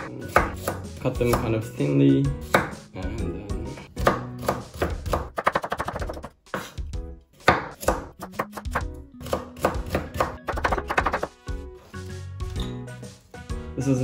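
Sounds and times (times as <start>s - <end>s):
knife chopping on cutting board: 0.3s - 1.5s, 2.4s - 2.8s, 4.0s - 6.8s, 7.4s - 11.3s.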